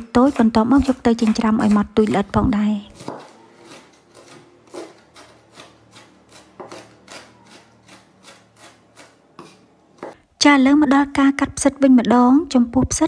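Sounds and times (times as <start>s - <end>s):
knife chopping on wooden board: 0.0s - 10.2s.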